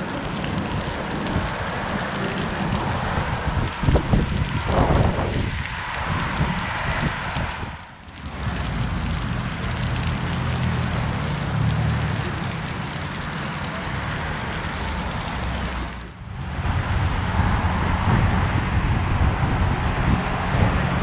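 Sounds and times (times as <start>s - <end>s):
water spray splashing on pavement: 0.0s - 16.2s
wind rumbling on microphone: 0.0s - 21.0s.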